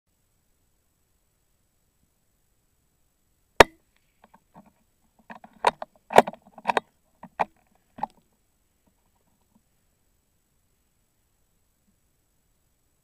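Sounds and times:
short clicks and knocks: 4.2s - 8.2s.

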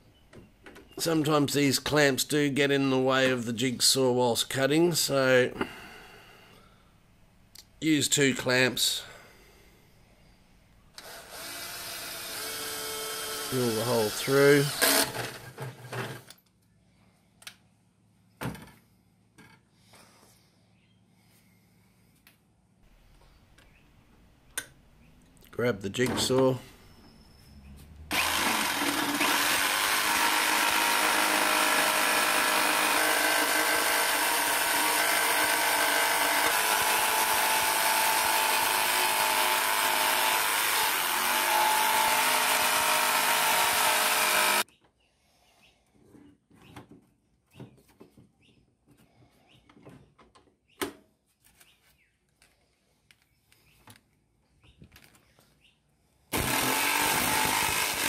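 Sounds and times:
jigsaw cutting steel: 11.0s - 16.4s, 28.1s - 44.6s, 56.3s - 58.0s.

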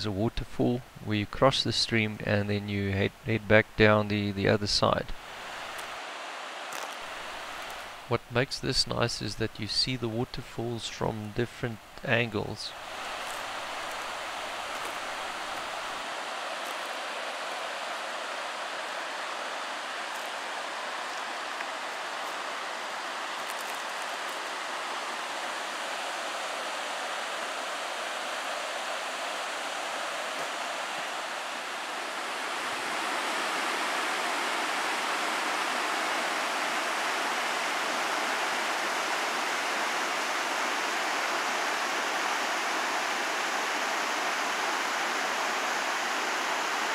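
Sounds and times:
waterfall rushing: 5.1s - 9.4s, 10.1s - 46.9s.

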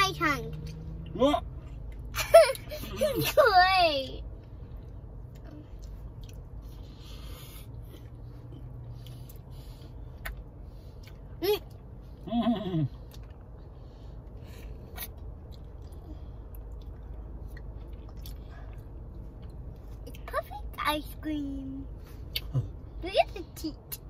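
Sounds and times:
child licking and chewing: 5.2s - 11.9s, 14.3s - 20.2s.

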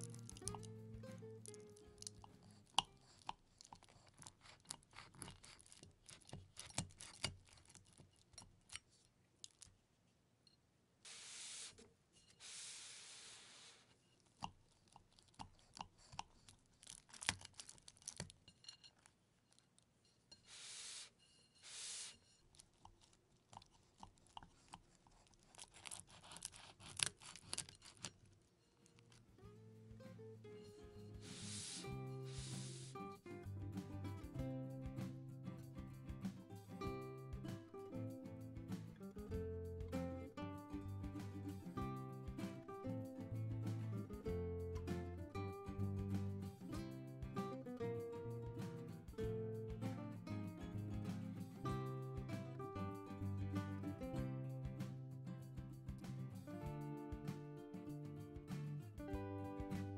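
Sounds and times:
knife crunching through pizza crust: 2.0s - 9.7s, 14.8s - 18.4s, 22.5s - 29.2s
knife sawing strokes: 25.6s - 28.1s, 31.2s - 33.0s.

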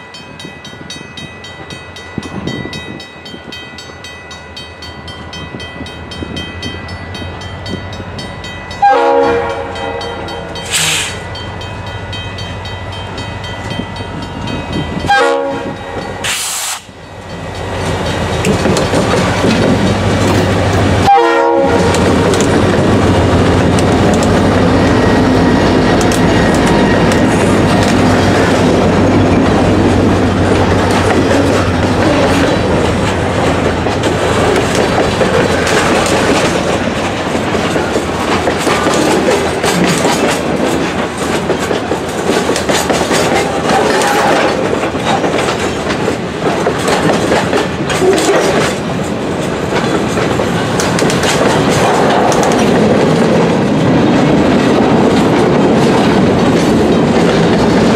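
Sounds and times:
diesel locomotive engine drone: 0.0s - 57.9s
train wheels clacking over rail joints: 13.0s - 57.9s.

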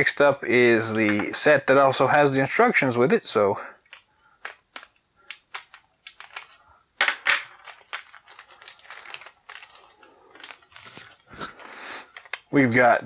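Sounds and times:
plastic bag crinkling: 4.5s - 12.6s.

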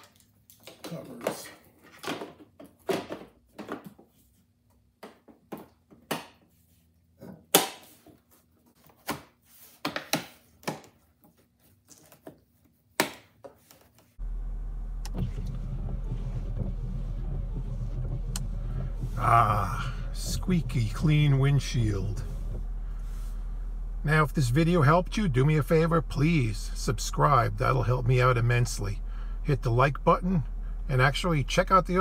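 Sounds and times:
car engine running: 14.2s - 32.0s.

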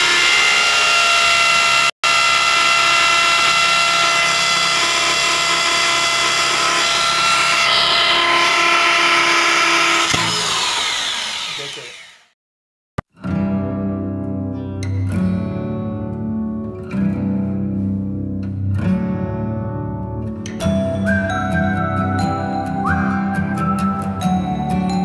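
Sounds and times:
electric drill boring into wood: 0.0s - 12.4s.

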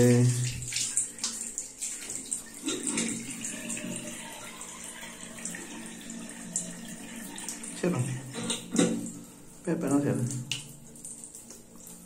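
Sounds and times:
tap water splashing into basin: 0.0s - 4.6s, 9.9s - 12.0s.

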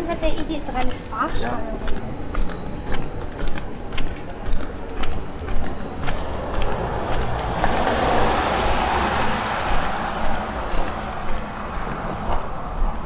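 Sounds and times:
vehicle passing by: 5.9s - 13.0s.

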